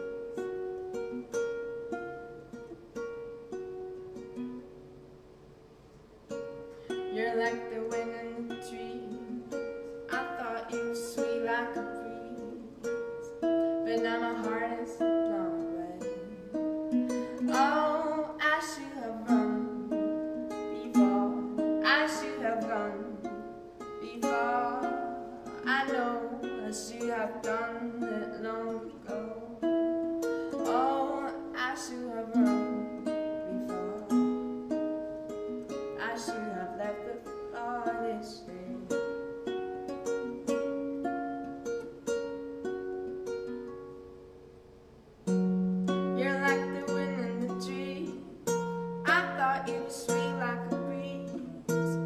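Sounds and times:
acoustic guitar chords: 0.0s - 52.0s
woman singing long notes: 7.0s - 29.8s, 30.4s - 34.5s, 35.5s - 39.1s, 46.2s - 52.0s.

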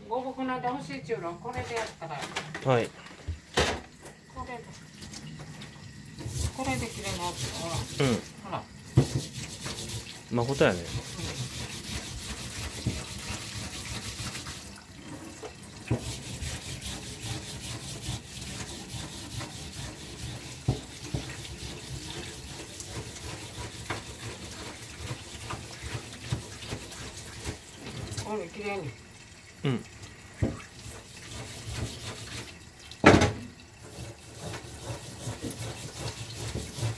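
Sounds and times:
tap water running into sink: 0.6s - 36.9s
root being scrubbed: 6.2s - 8.2s, 9.0s - 14.4s, 16.0s - 20.4s, 21.1s - 24.8s, 31.3s - 32.4s, 33.9s - 36.9s.

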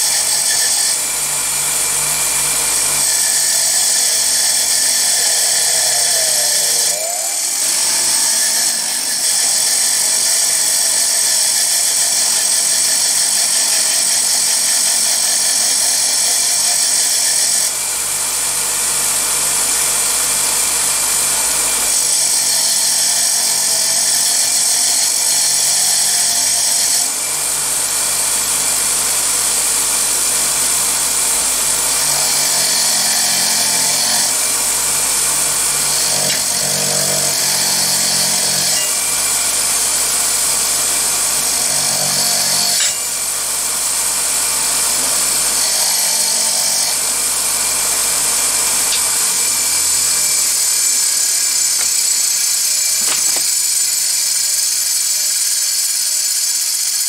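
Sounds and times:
wire wheel grinding metal: 35.9s - 39.1s, 41.5s - 43.2s.

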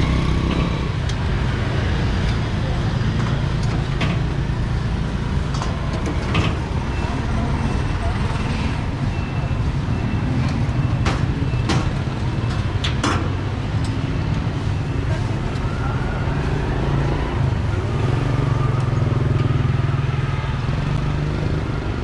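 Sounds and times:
traffic engines rumbling: 0.0s - 22.0s.

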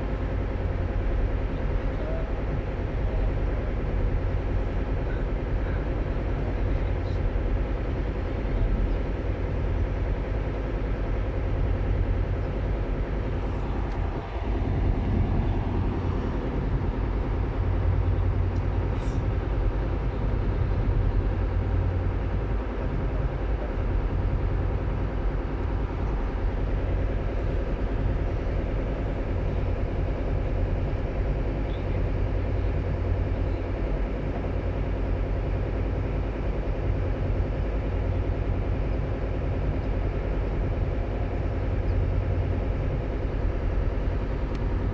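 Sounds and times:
ship diesel engines droning: 0.0s - 44.9s.

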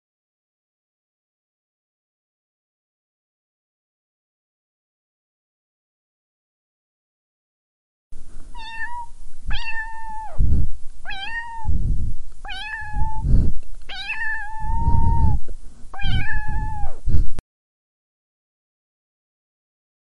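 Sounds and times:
low rough noise: 8.2s - 17.4s
cat meowing: 8.6s - 10.4s, 11.1s - 11.7s, 12.5s - 13.2s, 13.9s - 15.4s, 16.0s - 17.0s.

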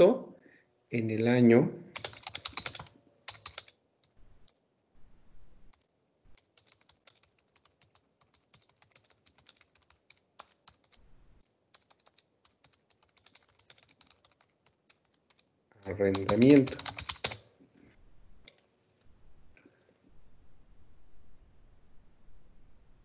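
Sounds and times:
keyboard typing: 1.9s - 4.6s, 5.7s - 11.0s, 11.7s - 17.5s.

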